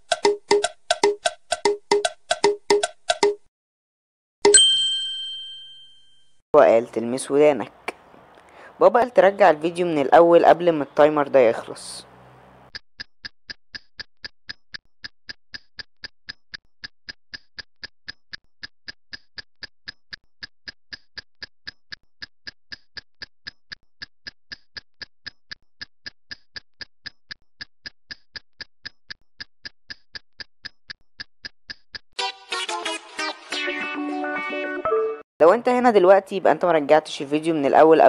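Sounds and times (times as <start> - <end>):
clock ticking: 0.0 - 3.5.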